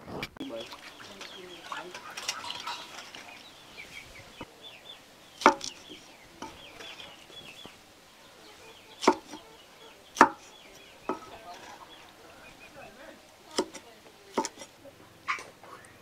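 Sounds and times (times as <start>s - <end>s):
knife chopping on wooden board: 5.4s - 6.6s, 9.0s - 9.4s, 10.2s - 10.5s, 13.5s - 14.7s.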